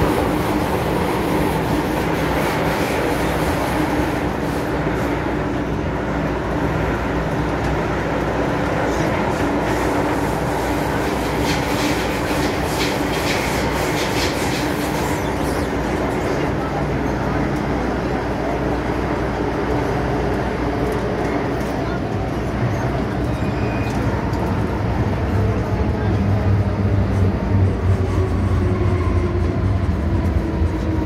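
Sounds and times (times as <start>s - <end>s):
train rumble inside passenger car: 0.0s - 31.0s.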